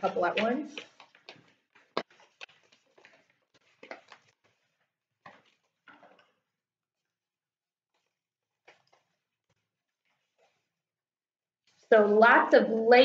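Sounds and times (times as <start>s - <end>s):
paper rustling: 0.0s - 7.2s, 7.9s - 10.8s.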